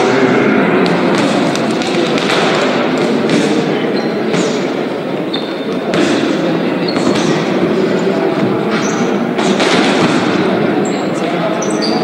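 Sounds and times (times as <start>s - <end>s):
din of many voices: 0.0s - 12.0s.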